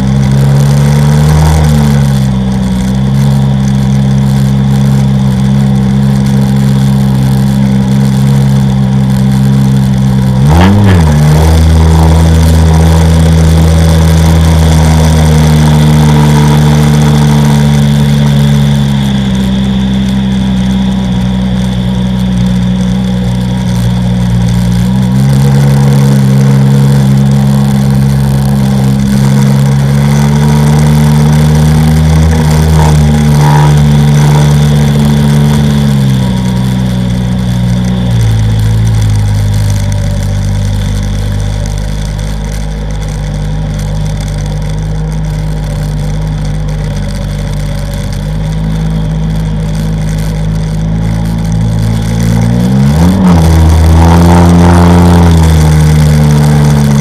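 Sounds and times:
watercraft engine revving: 0:00.0 - 0:57.0.

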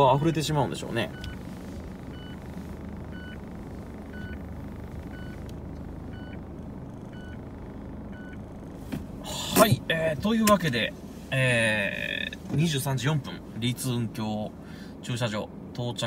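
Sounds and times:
reverse warning beeper: 0:00.0 - 0:08.7
car engine humming: 0:00.0 - 0:16.0.

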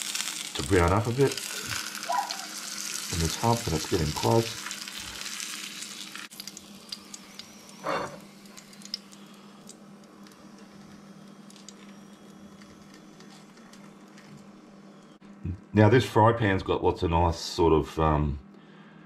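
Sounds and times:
fat sizzling in frying pan: 0:00.0 - 0:14.3
hot pan spitting and crackling: 0:00.0 - 0:14.3.

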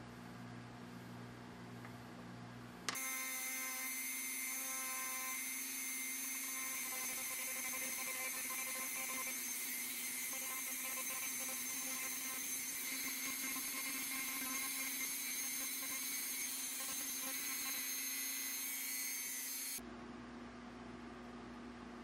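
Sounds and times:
rotary tool motor whine: 0:02.9 - 0:19.8.

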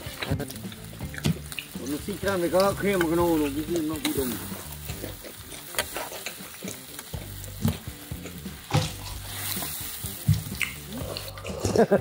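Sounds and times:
meat sizzling in a wok: 0:00.0 - 0:12.0
metal ladle scraping a pan: 0:08.2 - 0:10.3.

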